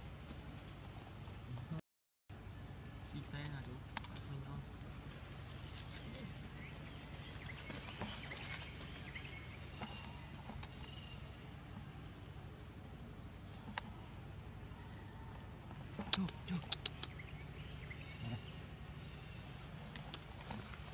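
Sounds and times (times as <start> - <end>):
shrill insect chorus: 0.0 - 20.9
sharp click: 3.9 - 4.2, 16.1 - 17.2.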